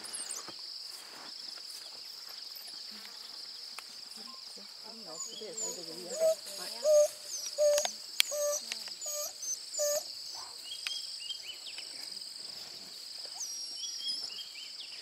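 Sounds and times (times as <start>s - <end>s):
high insect drone: 0.0s - 15.0s
wild dog hoo calls: 5.2s - 10.6s
bird chirps: 13.3s - 15.0s.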